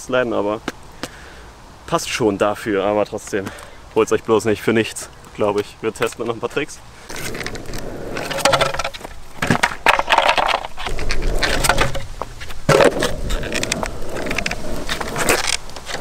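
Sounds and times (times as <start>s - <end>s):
wheels rolling on rough asphalt: 2.3s - 16.0s
skateboard knocking on asphalt: 7.1s - 16.0s.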